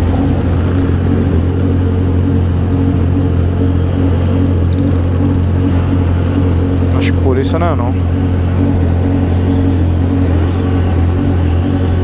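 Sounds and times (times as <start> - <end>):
motorcycle engines idling: 0.0 - 12.0.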